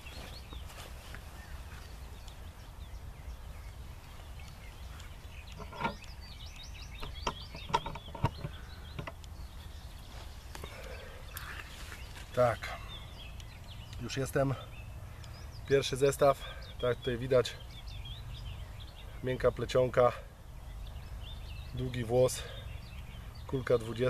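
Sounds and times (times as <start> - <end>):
small birds chirping: 0.0 - 24.0
camera handling knocks and clicks: 6.9 - 9.3.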